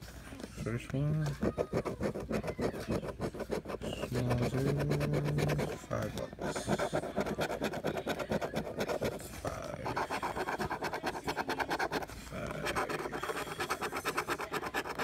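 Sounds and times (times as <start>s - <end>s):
coin scraping lottery ticket: 9.9s - 15.0s.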